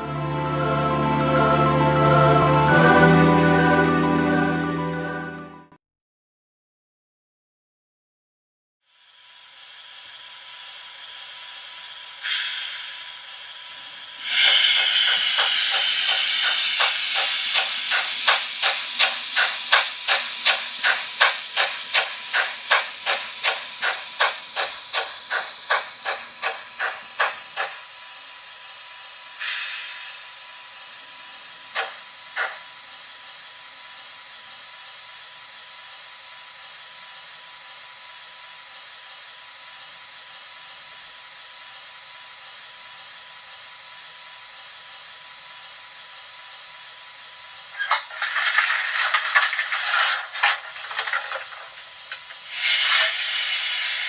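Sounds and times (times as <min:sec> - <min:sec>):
model steam locomotive hiss: 0:09.1 - 0:37.4, 0:45.6 - 0:54.0
model locomotive chuffs: 0:09.1 - 0:54.0.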